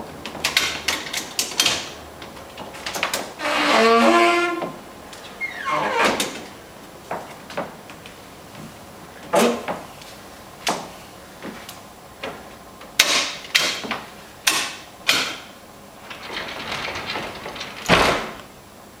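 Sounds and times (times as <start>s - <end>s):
sliding door rolling on track: 0.0s - 7.8s, 14.7s - 18.5s
wall bed frame knocking and clicking: 10.6s - 15.5s
door shutting with thud: 16.1s - 18.4s.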